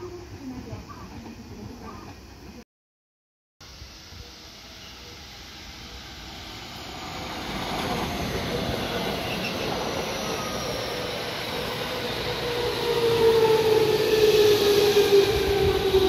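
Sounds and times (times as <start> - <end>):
steel wheels rumbling on rail: 4.3 - 16.0.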